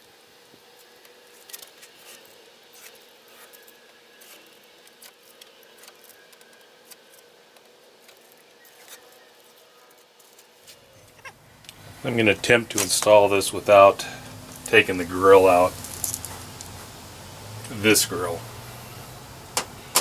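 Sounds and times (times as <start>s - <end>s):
masking tape peeling: 1.2s - 7.2s, 9.9s - 19.7s.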